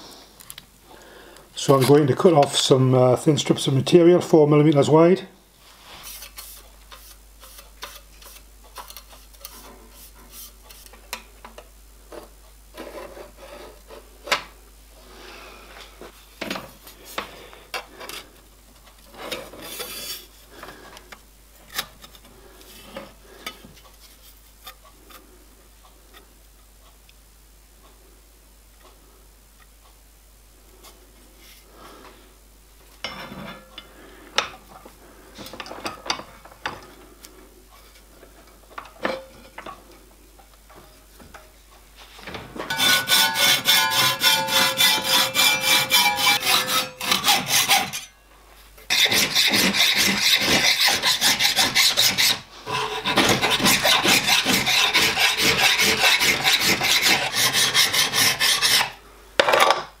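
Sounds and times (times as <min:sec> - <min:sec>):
file strokes on metal: 0:05.6 - 0:10.9, 0:42.7 - 0:48.1, 0:48.9 - 0:59.0
hacksaw cutting metal sheet: 0:42.7 - 0:48.1, 0:48.9 - 0:59.0.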